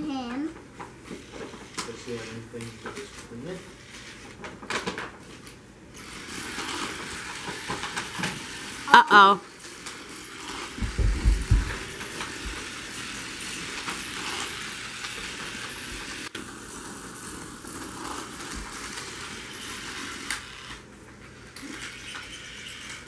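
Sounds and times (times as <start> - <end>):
toy cars whirring and rattling: 1.1 - 9.0, 9.6 - 23.0
plastic track clatter: 4.3 - 5.6, 6.3 - 8.8, 9.7 - 16.3.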